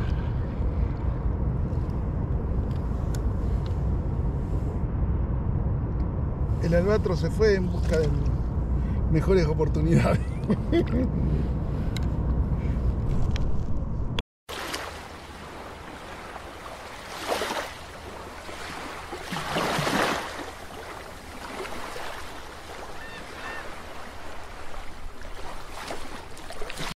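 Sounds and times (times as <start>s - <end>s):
ocean surf washing: 14.5s - 27.0s.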